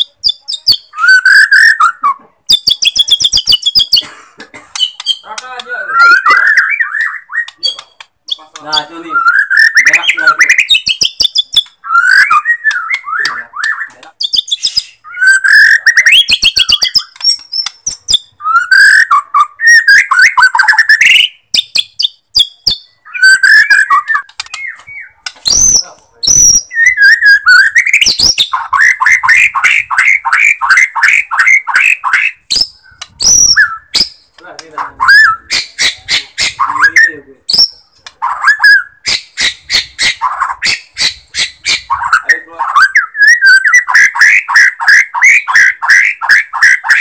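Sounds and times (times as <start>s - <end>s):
bird singing whistled phrases: 0.0s - 4.0s, 5.9s - 34.3s, 35.0s - 47.0s
bird clicking notes: 4.7s - 14.9s, 15.5s - 18.2s, 23.5s - 27.2s
fast rattling bird call: 4.8s - 47.0s.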